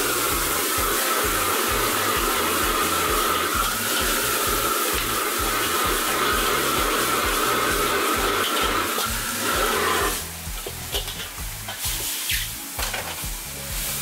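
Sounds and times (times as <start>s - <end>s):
gas burner roaring: 0.0s - 14.0s
greens sizzling: 0.0s - 14.0s.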